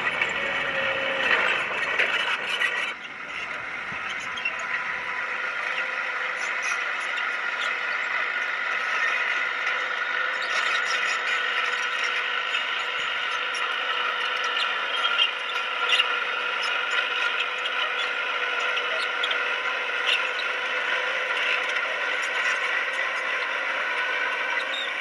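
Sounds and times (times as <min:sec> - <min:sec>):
squeaks and clicks: 0:00.0 - 0:04.8, 0:08.7 - 0:25.0
bulldozer mechanical whine: 0:00.0 - 0:25.0.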